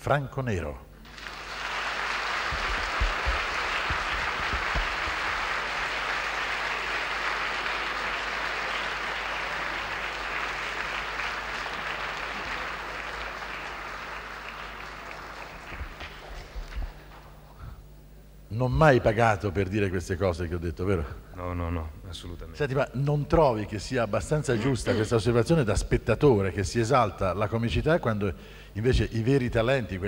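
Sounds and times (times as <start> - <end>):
audience applauding: 1.0 - 17.5.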